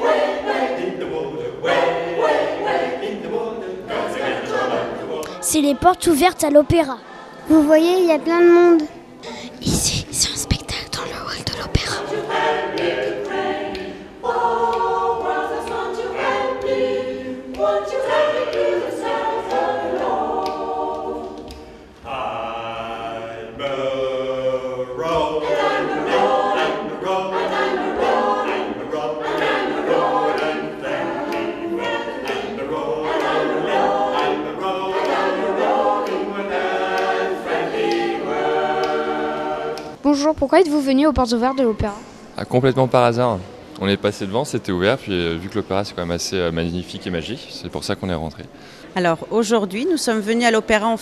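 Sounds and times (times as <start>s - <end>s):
mixed choir singing a cappella: 0.0s - 7.8s, 8.4s - 40.0s.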